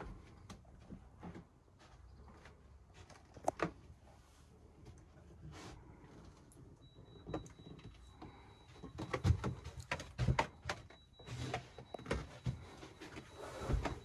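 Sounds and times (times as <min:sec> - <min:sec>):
knocks and thumps in cabin: 0:07.1 - 0:14.0.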